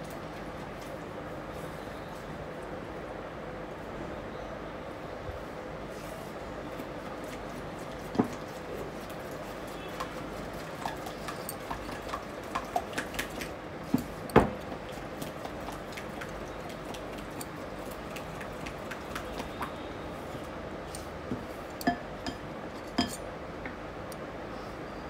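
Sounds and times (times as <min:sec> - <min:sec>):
spatula tapping glass bowl: 0:21.8 - 0:22.4.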